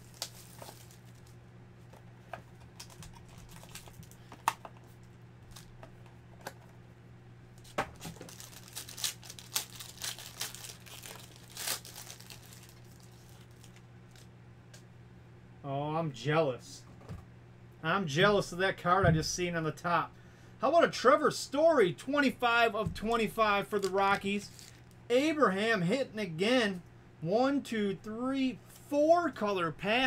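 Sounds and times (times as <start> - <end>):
plastic wrapper crinkling and tearing: 0.0 - 1.4, 2.6 - 4.6, 7.6 - 14.3, 23.7 - 25.0
steady low hum: 0.0 - 30.0.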